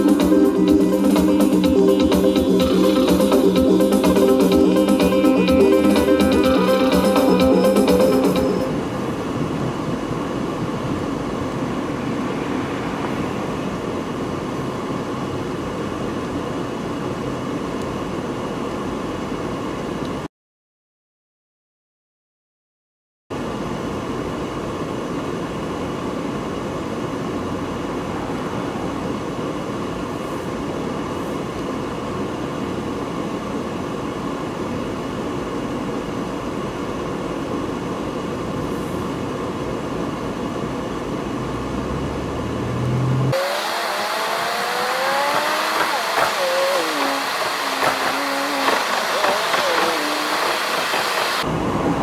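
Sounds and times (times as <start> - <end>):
car road and engine noise: 0.0 - 20.3, 23.4 - 52.0
bright rush with rising tones: 10.7 - 14.7, 27.4 - 30.3, 41.6 - 52.0.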